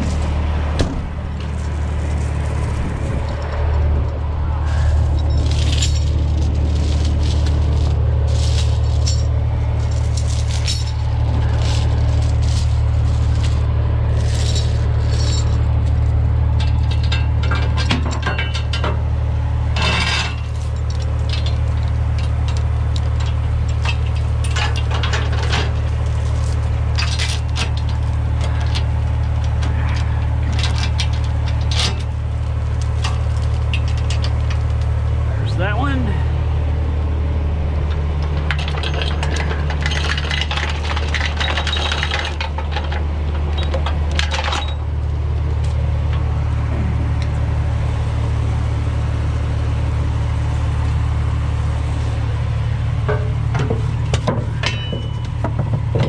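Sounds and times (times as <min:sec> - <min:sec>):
steel chains clinking and rattling: 0:00.0 - 0:00.4, 0:01.4 - 0:18.9, 0:19.8 - 0:35.0, 0:38.2 - 0:45.9, 0:53.0 - 0:56.0
diesel engine idling: 0:00.0 - 0:56.0.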